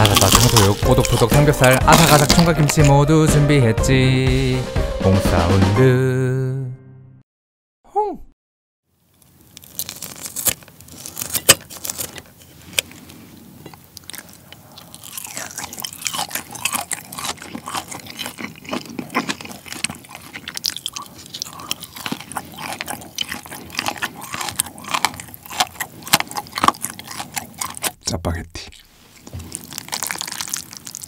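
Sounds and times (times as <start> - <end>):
scissors snipping meat: 0.0 - 2.9
chewing and crunching: 0.0 - 3.0, 9.1 - 28.0, 28.6 - 31.0.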